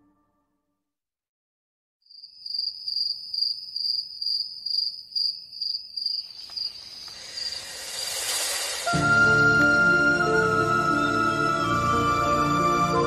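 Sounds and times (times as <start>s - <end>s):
insect chirping trill: 2.1s - 9.0s
rising hiss: 6.4s - 13.0s.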